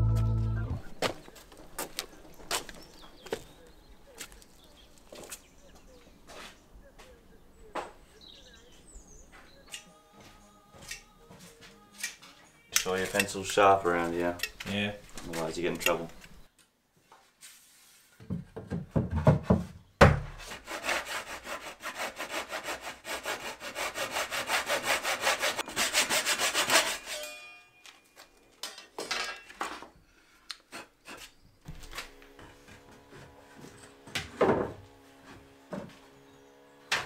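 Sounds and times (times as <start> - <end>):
wooden boards knocking: 18.3 - 20.4
handsaw cutting wood: 20.4 - 27.2.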